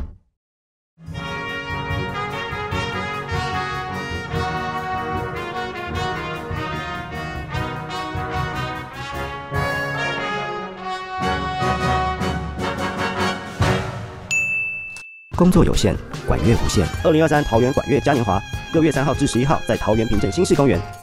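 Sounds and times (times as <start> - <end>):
brass band playing: 1.0 - 14.3, 16.3 - 20.7.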